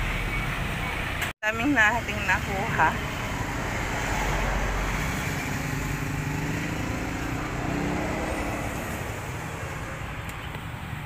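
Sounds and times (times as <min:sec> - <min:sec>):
vehicle engine passing: 0:02.0 - 0:11.0.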